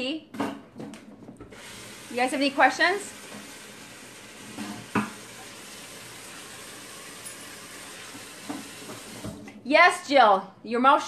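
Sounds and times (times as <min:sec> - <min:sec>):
faucet running into steel sink: 0:01.4 - 0:09.5.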